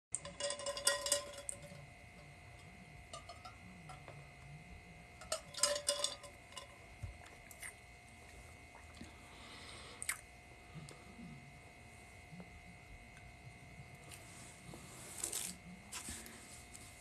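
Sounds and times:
glass tumbler clicks and clinks: 0:00.2 - 0:04.2, 0:05.2 - 0:06.8
faint steady tone: 0:00.2 - 0:17.0.

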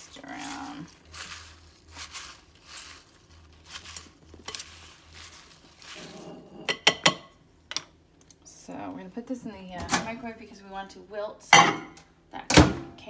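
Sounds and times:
leaves rustling in a bowl: 0:00.0 - 0:06.8.

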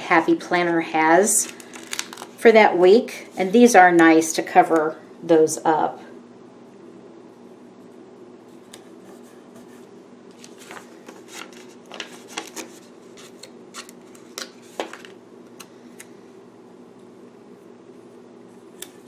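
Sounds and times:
steady low hum: 0:00.0 - 0:19.0
paper rustling: 0:09.1 - 0:15.2.

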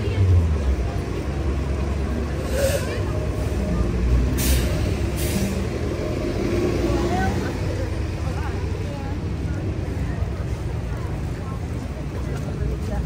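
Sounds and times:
traffic engines rumbling: 0:00.0 - 0:13.0
tyres hissing on wet road: 0:00.1 - 0:09.8.

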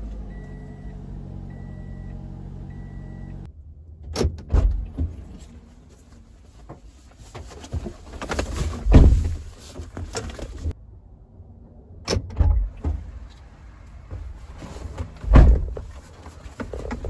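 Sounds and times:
thumps and rustling in car cabin: 0:04.1 - 0:10.8, 0:14.0 - 0:17.0
heavy thud: 0:08.8 - 0:09.5, 0:15.2 - 0:15.9.

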